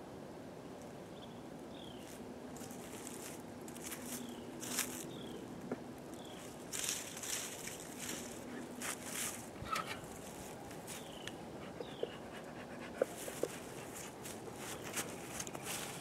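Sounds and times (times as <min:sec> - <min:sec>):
footsteps crunching through dry leaves: 0:01.9 - 0:11.2, 0:13.2 - 0:16.0
bird chirping: 0:10.9 - 0:12.3.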